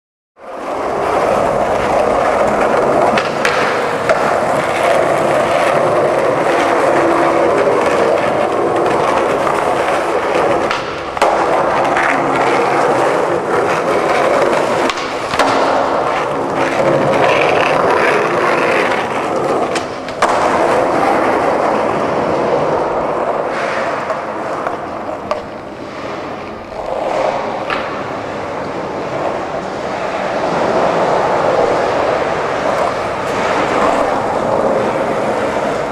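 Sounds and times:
skateboard clacks: 0.4s - 35.9s
skateboard wheels rolling on concrete: 0.4s - 35.9s.

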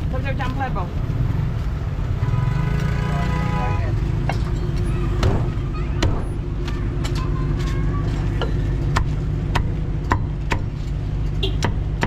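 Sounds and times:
street traffic rumble: 0.0s - 12.0s
cleaver chopping on wooden block: 8.4s - 10.8s, 11.4s - 12.0s.

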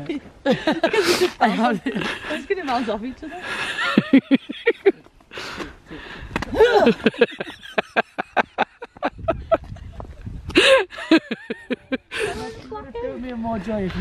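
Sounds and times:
woman laughing: 0.5s - 5.0s, 6.5s - 12.8s.

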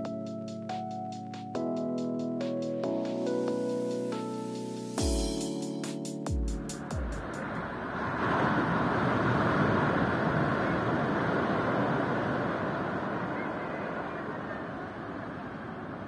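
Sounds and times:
ocean wave breaking: 7.2s - 16.0s.

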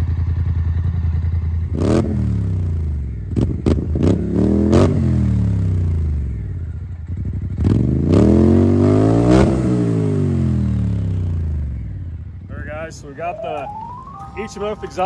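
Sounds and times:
atv engine revving: 1.7s - 6.3s, 7.1s - 11.8s.

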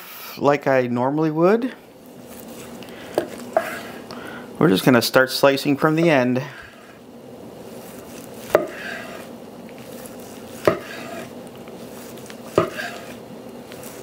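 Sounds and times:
knife blade scraping: 3.2s - 4.0s, 7.9s - 14.0s
knife knocking on cutting board: 8.5s - 8.8s, 10.6s - 10.9s, 12.6s - 12.9s.

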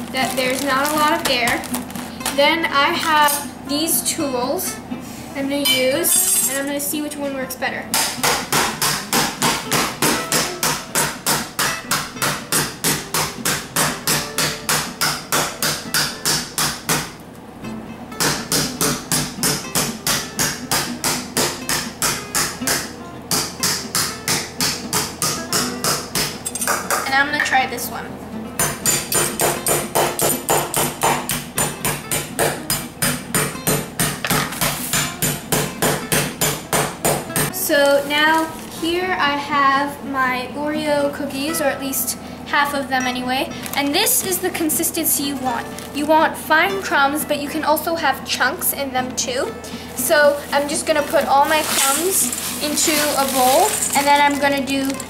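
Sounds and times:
mallet pounding cookies in bag: 8.0s - 17.2s, 51.1s - 55.0s
spoon pounding cookies in bag: 51.1s - 55.0s.

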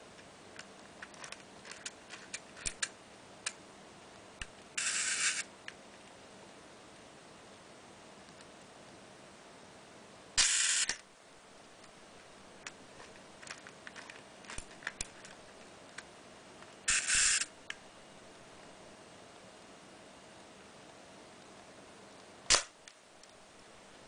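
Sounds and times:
camera shutter release: 4.8s - 5.5s, 10.4s - 11.0s, 16.9s - 17.5s, 22.5s - 22.7s.

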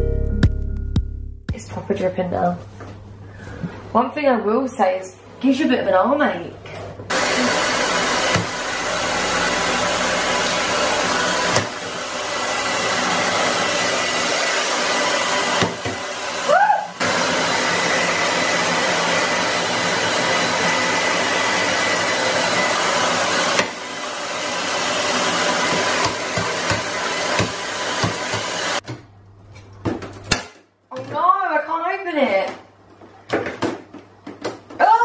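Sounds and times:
hair dryer blowing: 7.1s - 28.8s.

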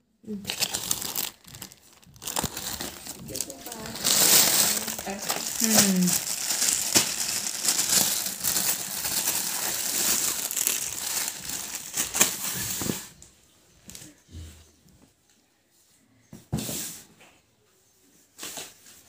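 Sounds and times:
plastic packaging crinkling: 0.3s - 13.1s.

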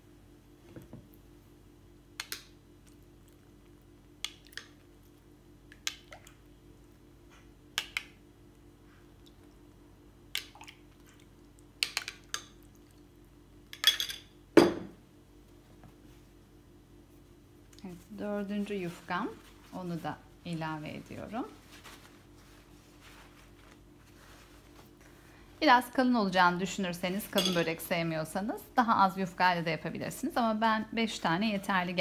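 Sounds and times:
metal spoon clinking glass bowl: 27.4s - 27.8s.

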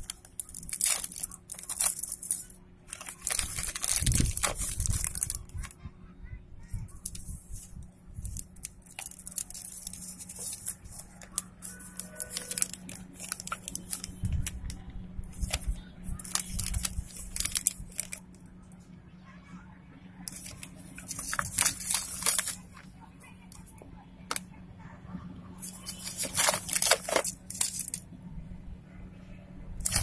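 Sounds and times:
plastic mailer bag crinkling: 0.0s - 5.8s, 6.9s - 18.4s, 20.3s - 23.7s, 25.6s - 28.0s, 29.8s - 30.0s.

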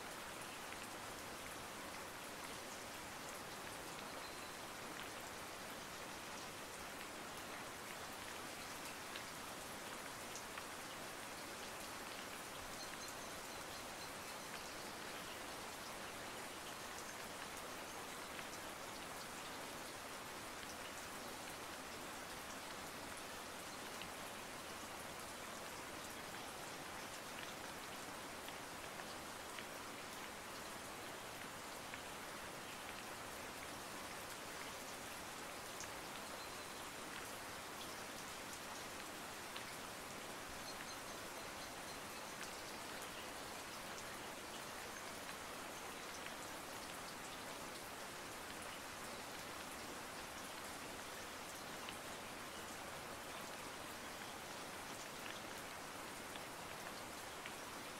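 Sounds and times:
steady rain hiss: 0.0s - 57.9s.

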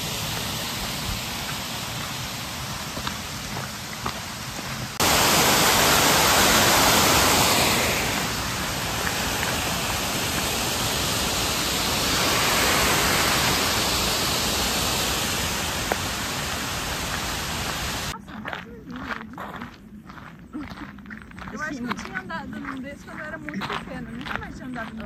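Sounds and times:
rushing stream water: 0.0s - 18.1s.

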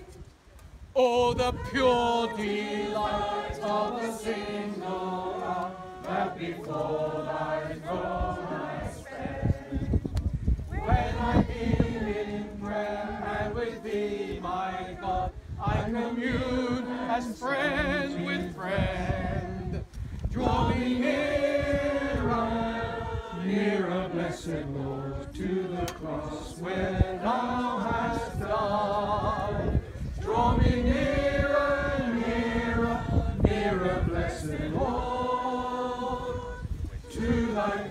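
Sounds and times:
group singing a hymn unaccompanied: 1.0s - 37.9s.

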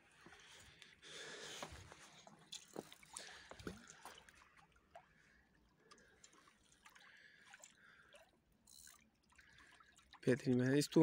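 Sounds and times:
water drips and light splashes: 0.0s - 11.0s.

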